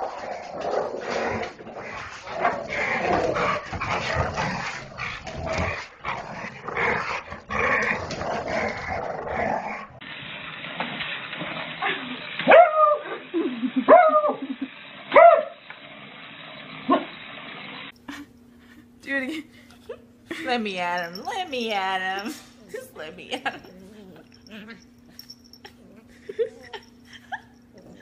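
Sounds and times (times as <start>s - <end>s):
dogs growling and yipping: 0.0s - 10.0s, 23.4s - 28.0s
dog barking: 12.5s - 13.0s, 15.1s - 15.6s.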